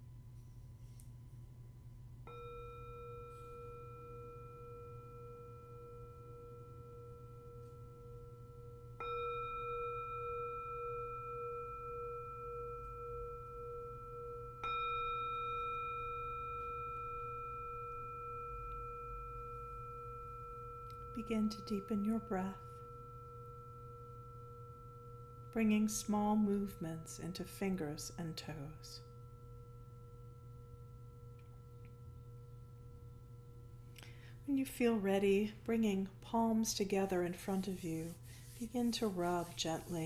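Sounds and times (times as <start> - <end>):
singing bowl ringing: 2.2 - 35.5, 36.6 - 40.0.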